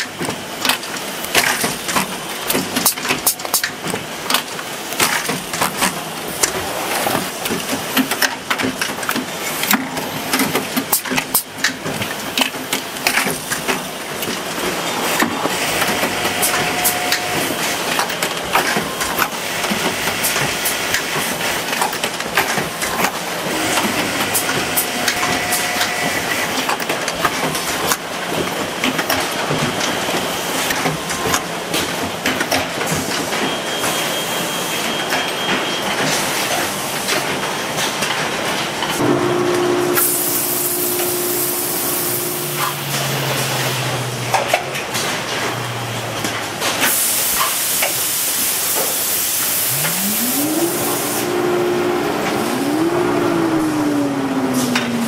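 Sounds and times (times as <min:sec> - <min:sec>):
sewing machinery clattering: 0:07.2 - 0:30.0
short steady tones: 0:39.0 - 0:43.3.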